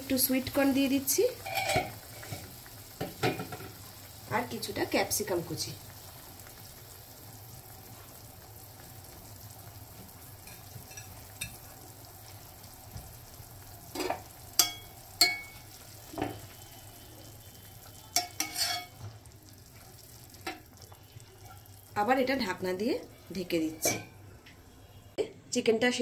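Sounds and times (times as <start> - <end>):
pot of water simmering: 0.0 - 25.2
metal spoon scraping metal pot: 1.4 - 2.4, 18.2 - 19.0.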